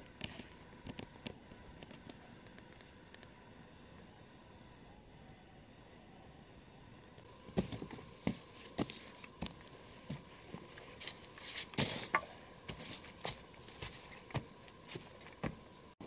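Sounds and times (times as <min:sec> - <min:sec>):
clambering over log rustling: 0:07.6 - 0:15.7
boots crunching through dry leaves: 0:11.0 - 0:15.2.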